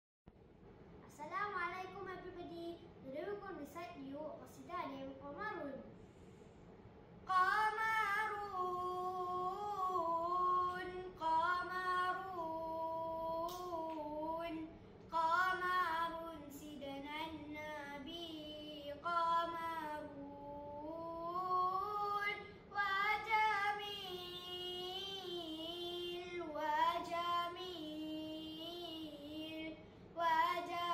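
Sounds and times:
boy chanting unaccompanied: 7.3s - 30.9s.

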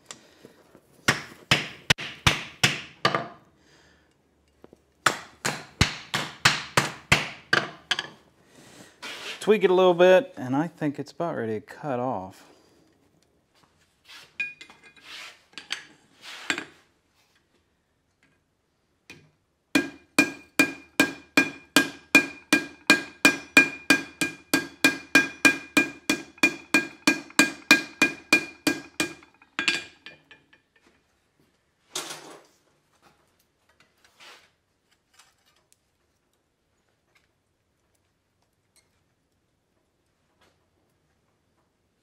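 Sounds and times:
hammer striking steel on anvil: 19.8s - 30.4s
tools clanking: 25.2s - 31.0s.

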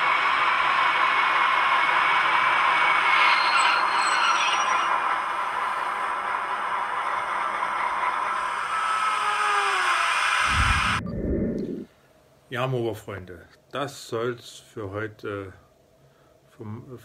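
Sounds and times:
model train running on track: 0.0s - 10.4s
thin motor whine: 0.0s - 11.8s.

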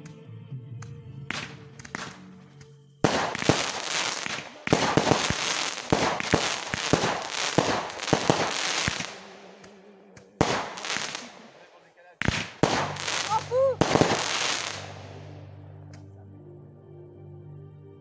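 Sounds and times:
faint music: 0.0s - 18.0s
fireworks crackling and banging: 1.3s - 2.2s, 3.0s - 15.6s.

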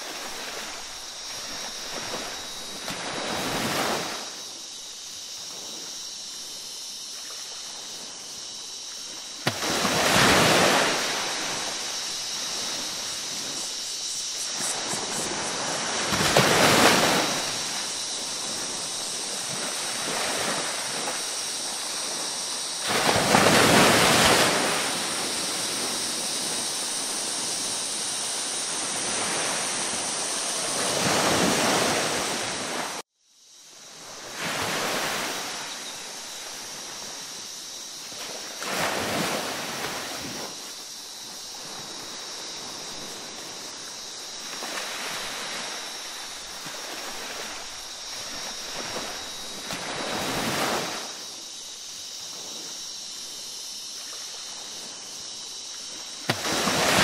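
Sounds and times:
ocean waves washing in: 0.0s - 33.0s, 33.9s - 57.0s
hiss of surf: 0.0s - 57.0s.

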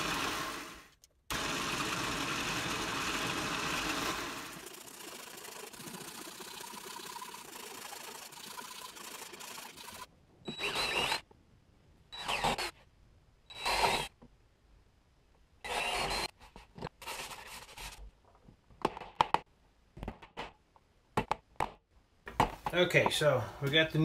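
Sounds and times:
cordless drill drilling into wood: 10.5s - 11.2s, 12.2s - 12.7s, 13.5s - 14.1s, 15.6s - 16.3s.

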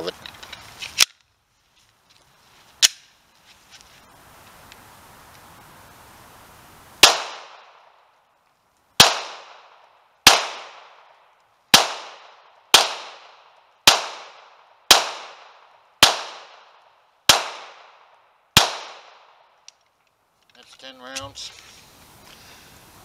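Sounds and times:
pistol shots with echo: 7.0s - 7.8s, 9.0s - 11.0s, 11.7s - 16.7s, 17.3s - 18.0s, 18.6s - 19.3s.

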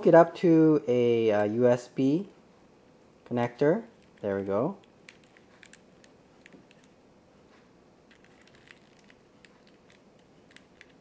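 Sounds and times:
small plastic clicks and handling: 4.0s - 7.0s, 8.1s - 11.0s.

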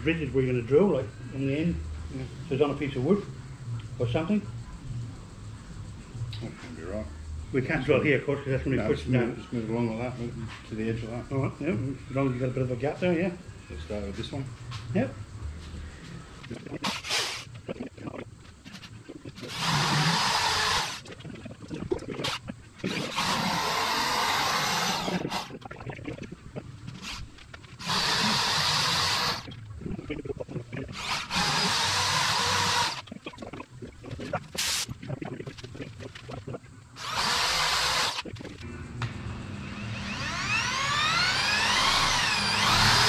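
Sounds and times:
electric drill boring plastic: 16.8s - 17.4s, 19.4s - 21.0s, 22.2s - 25.6s, 27.8s - 29.5s, 30.9s - 33.0s, 37.0s - 38.5s, 39.6s - 43.0s.

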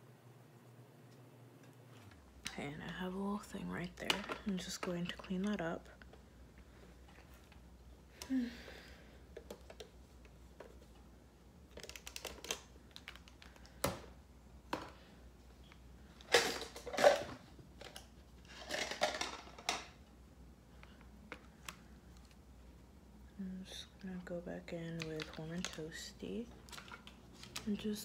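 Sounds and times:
makeup items clicking and tapping: 2.4s - 6.2s, 9.3s - 11.0s, 11.7s - 14.1s, 24.7s - 28.0s
rustling and clattering: 16.2s - 20.0s.

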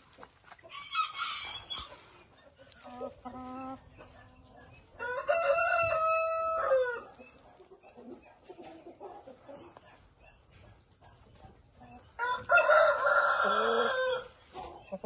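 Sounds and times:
rooster crowing: 5.0s - 7.0s, 12.2s - 14.3s.

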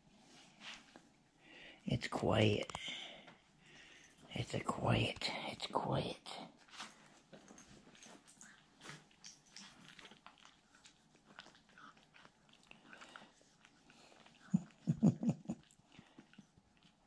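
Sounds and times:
low dog sounds: 7.6s - 17.0s.

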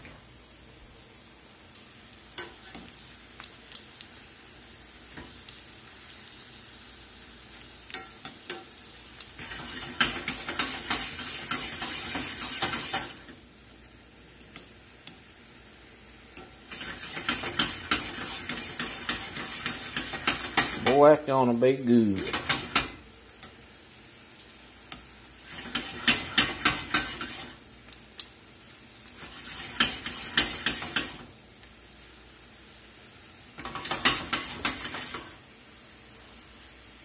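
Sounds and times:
shrimp sizzling in a skillet: 0.0s - 37.0s
tongs clicking against pan: 1.7s - 3.8s, 7.8s - 11.6s, 14.4s - 15.2s, 16.3s - 20.8s, 22.2s - 23.6s, 24.9s - 28.4s.

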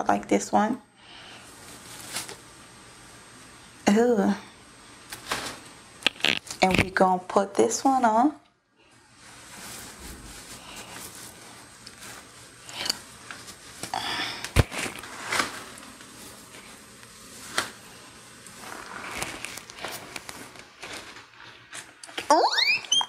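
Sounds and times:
brushing noises: 9.2s - 12.4s
wig hair rustling: 9.2s - 13.9s, 14.6s - 21.6s.

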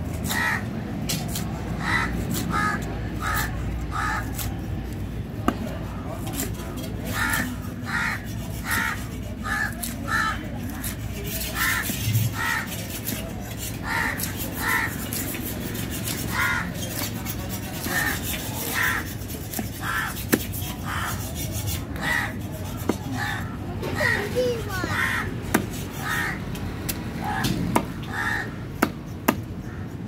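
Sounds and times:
crows cawing: 0.2s - 0.7s, 1.8s - 4.5s, 7.1s - 13.0s, 13.8s - 15.3s, 16.3s - 17.1s, 17.8s - 21.3s, 21.9s - 22.4s, 23.2s - 25.3s, 25.9s - 26.4s, 27.2s - 29.0s, 29.6s - 30.0s
knife chopping on wooden block: 28.8s - 29.5s.

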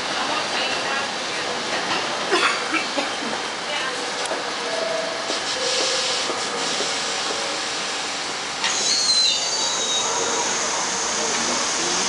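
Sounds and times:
subway train rumbling past: 0.0s - 12.0s
high-pitched wheel squeals: 8.6s - 12.0s.

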